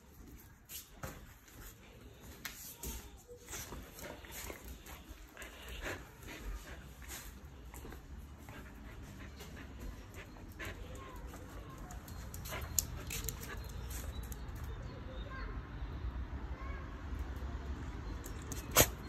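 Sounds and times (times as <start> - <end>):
dog breathing: 3.9 - 11.6.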